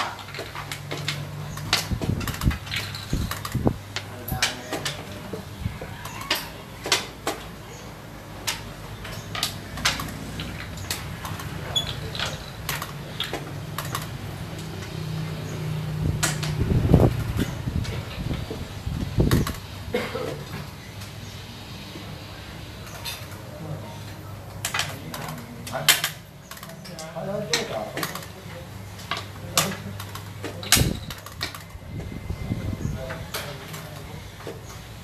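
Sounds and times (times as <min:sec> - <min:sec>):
game pieces clacking on wooden board: 0:00.0 - 0:07.5, 0:08.4 - 0:15.0.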